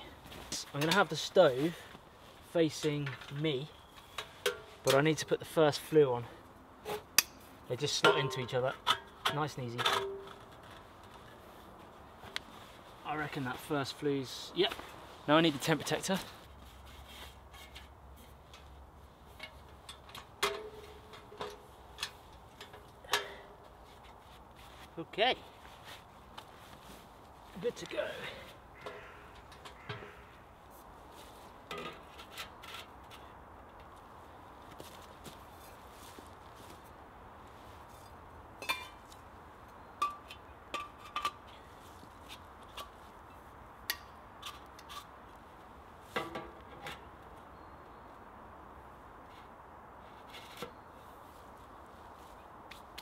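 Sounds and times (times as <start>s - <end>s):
metal pipes clinking and knocking: 6.9s - 10.4s, 19.4s - 23.4s, 40.0s - 41.6s.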